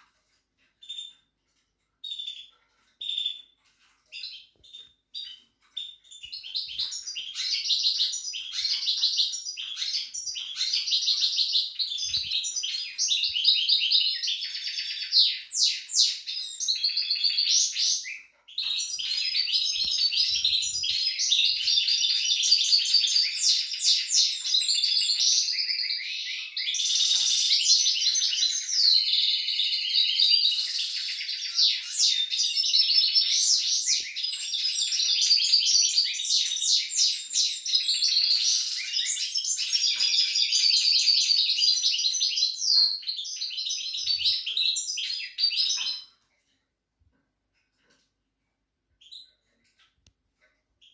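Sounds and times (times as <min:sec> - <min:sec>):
caged finches trilling and twittering: 0:00.0 - 0:46.3.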